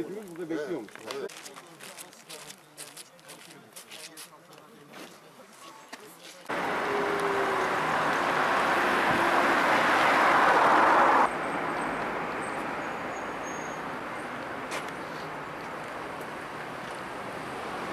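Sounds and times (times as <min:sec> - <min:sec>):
street traffic: 0:00.0 - 0:17.9
rushing outdoor noise: 0:06.5 - 0:17.9.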